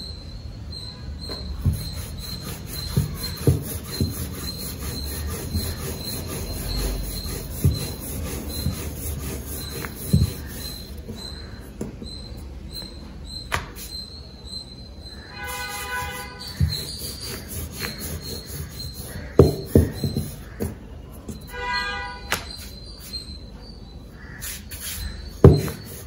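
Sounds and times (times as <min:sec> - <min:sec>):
rolling pin rolling dough: 0:01.2 - 0:14.2, 0:15.4 - 0:21.7, 0:24.5 - 0:26.0
rolling pin knocking tabletop: 0:01.6 - 0:11.2, 0:16.4 - 0:21.4, 0:25.4 - 0:26.0.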